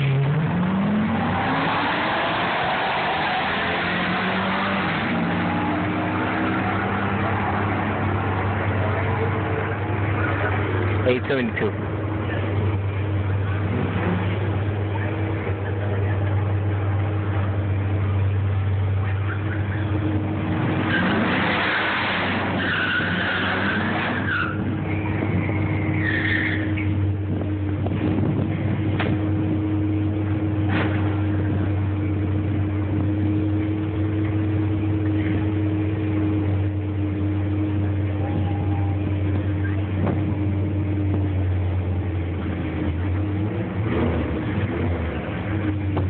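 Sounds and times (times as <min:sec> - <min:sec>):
tire squeal: 0:01.1 - 0:08.9, 0:20.5 - 0:27.1
race cars idling: 0:04.4 - 0:46.0.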